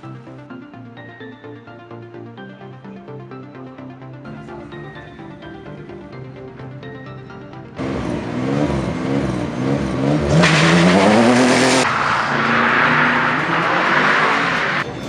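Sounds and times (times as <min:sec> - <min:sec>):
car tyre noise on tarmac: 0:07.8 - 0:15.0
rally car engine revving: 0:07.8 - 0:15.0.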